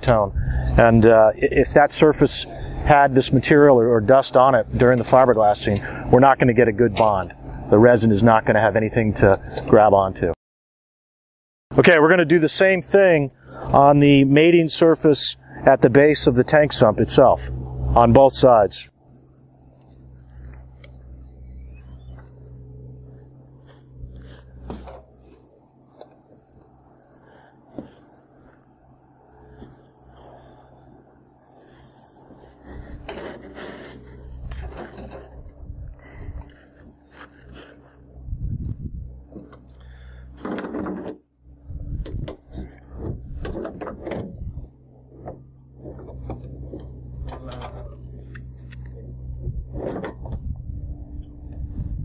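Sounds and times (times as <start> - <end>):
low steady hum: 0.0 - 10.4, 11.7 - 52.0
rag rubbing on fiberglass: 31.4 - 35.4.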